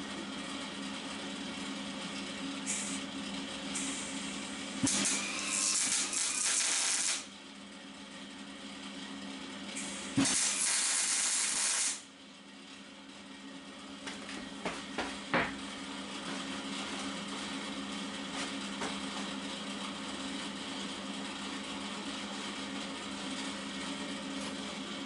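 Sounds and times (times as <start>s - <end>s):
welding arc hissing and crackling: 2.7s - 3.0s, 3.8s - 4.2s, 4.8s - 7.3s, 9.8s - 12.1s.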